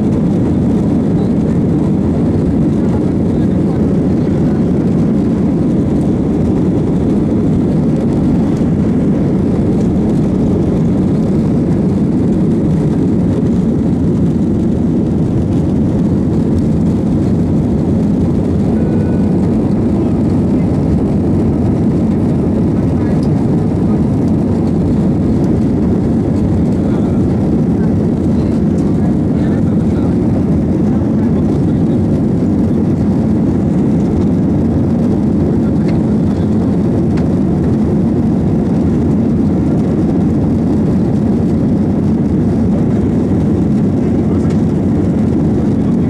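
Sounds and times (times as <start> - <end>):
air rushing over fuselage: 0.0 - 46.0
jet engines at take-off thrust: 0.0 - 46.0.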